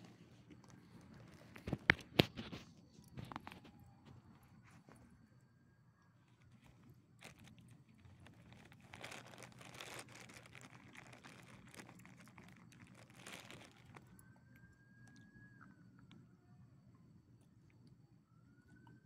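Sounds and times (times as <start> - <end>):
crunching on loose gravel: 6.4 - 14.2.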